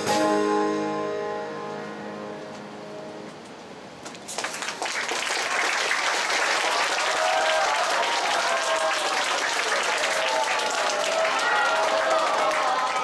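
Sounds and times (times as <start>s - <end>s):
crowd applause: 4.3s - 13.0s.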